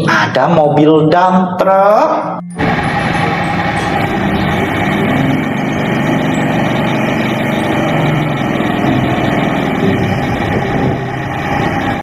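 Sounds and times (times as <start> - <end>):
dump truck diesel engines running: 2.5 - 12.0.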